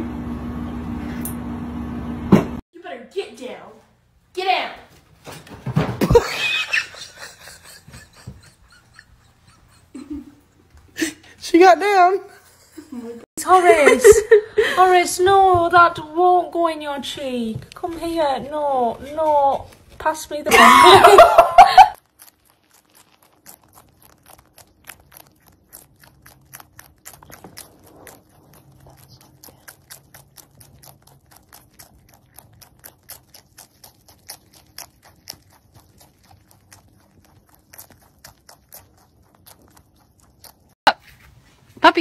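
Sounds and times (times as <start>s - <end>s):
rabbit chewing leafy greens: 6.8s - 10.0s, 14.8s - 42.0s.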